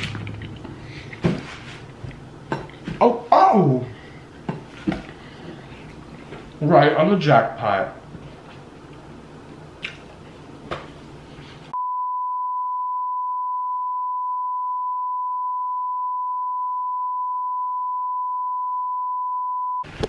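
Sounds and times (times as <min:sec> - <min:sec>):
censor beep tone: 0:11.8 - 0:19.9.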